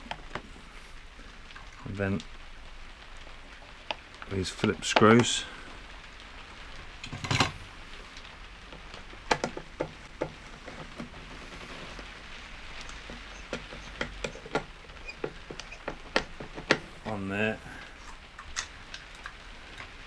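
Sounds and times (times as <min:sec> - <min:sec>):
steady rain hiss: 0:00.0 - 0:20.0.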